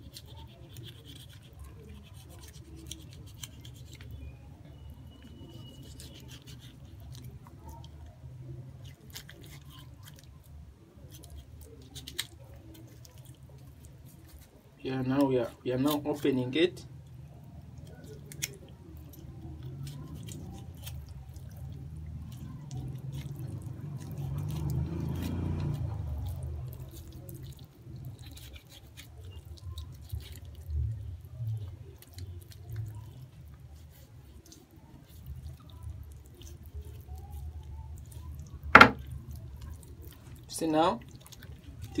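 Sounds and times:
knife cutting wet raw meat: 0:00.0 - 0:04.2, 0:18.0 - 0:30.6, 0:31.8 - 0:39.6
knife knocking on wooden table: 0:38.7 - 0:39.0.

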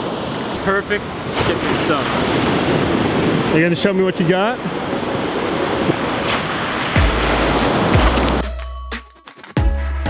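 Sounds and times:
ocean surf washing onto beach: 0:00.0 - 0:08.4
background music with deep bass: 0:07.0 - 0:10.0.

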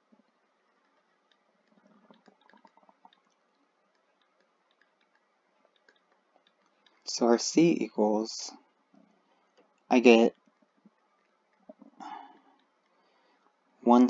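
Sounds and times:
soft rustling: 0:00.0 - 0:07.1
faint clicks: 0:00.0 - 0:07.2, 0:08.5 - 0:13.6.

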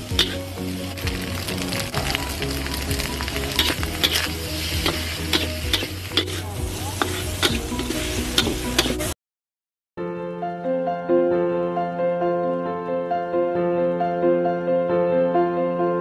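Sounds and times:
rice sizzling in a wok: 0:00.0 - 0:09.2
spatula scraping wok: 0:00.0 - 0:09.2.

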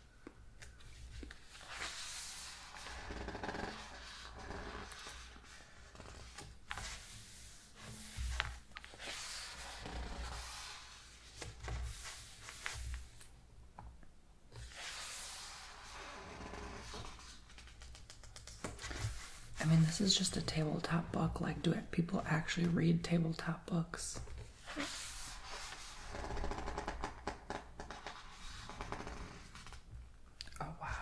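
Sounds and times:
book pages turning: 0:00.6 - 0:13.3, 0:14.6 - 0:20.2, 0:24.4 - 0:29.9.

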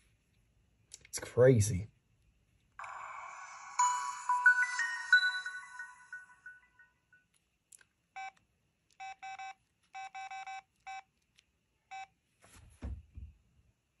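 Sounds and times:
phone keypad beeps: 0:09.0 - 0:11.1.

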